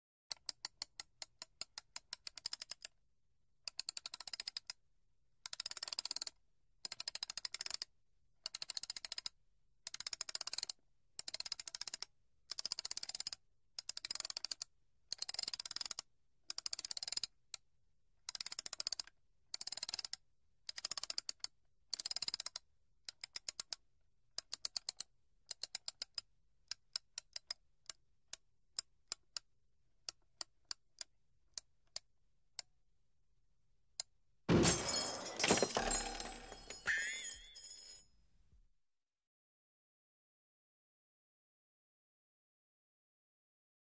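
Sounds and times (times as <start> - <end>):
clock key ratchet clicking: 0.3 - 2.9, 3.6 - 4.8, 9.9 - 17.6, 18.3 - 23.8.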